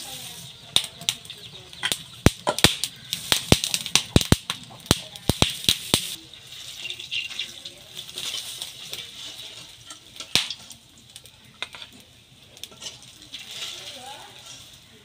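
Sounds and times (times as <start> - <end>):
food sizzling in hot oil: 0.0 - 15.0
metal spatula scraping pan: 12.7 - 14.9.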